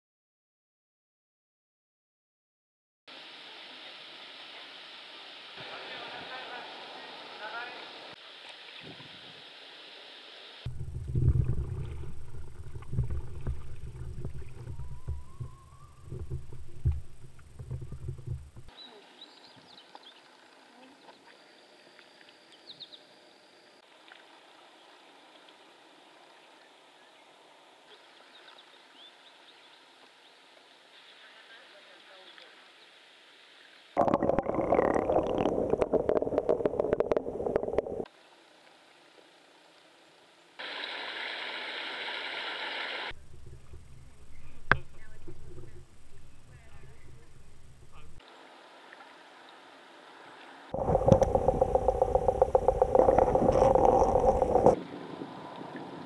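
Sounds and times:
faint hiss: 0:03.1 - 0:11.1, 0:18.7 - 0:34.0, 0:35.9 - 0:56.0
water gurgling and sloshing: 0:10.7 - 0:18.7, 0:34.0 - 0:38.1, 0:50.7 - 0:56.0.

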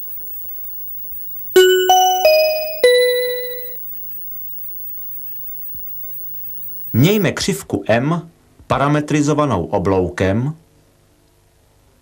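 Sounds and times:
faint steady hum: 0:00.0 - 0:07.3
four-note chime jingle: 0:01.6 - 0:03.8.

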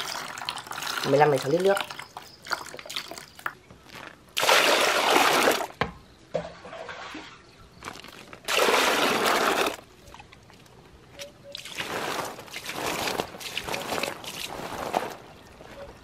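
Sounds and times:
water pouring into basin: 0:00.0 - 0:03.5, 0:04.4 - 0:05.7, 0:08.5 - 0:09.8.

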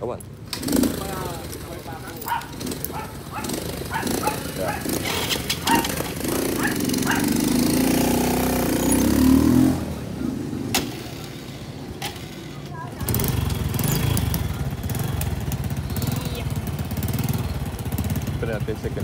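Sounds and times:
engine running: 0:00.4 - 0:19.0.

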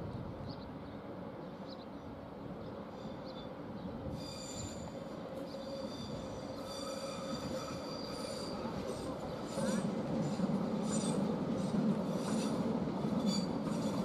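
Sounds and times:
electric train running past: 0:00.0 - 0:14.0
high-pitched wheel squeal: 0:04.1 - 0:09.9, 0:13.2 - 0:14.0.

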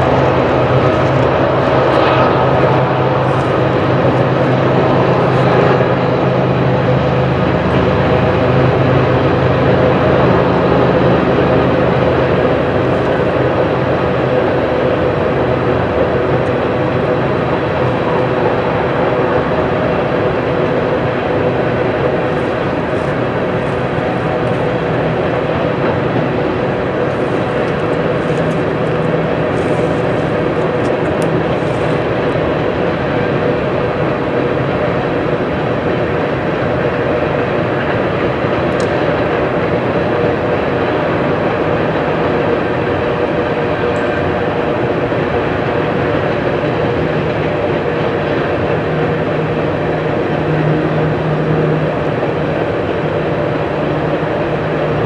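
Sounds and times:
low even hum: 0:00.0 - 0:55.0
train wheels rumbling on rail: 0:00.0 - 0:55.0.

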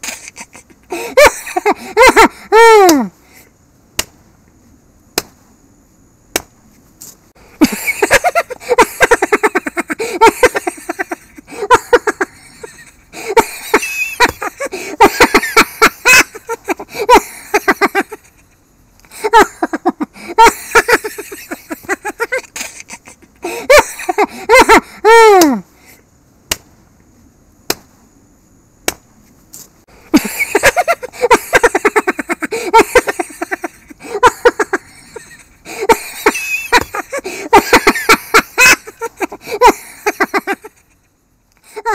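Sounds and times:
maniacal laughter: 0:00.0 - 0:03.1, 0:07.6 - 0:25.6, 0:30.1 - 0:41.9.

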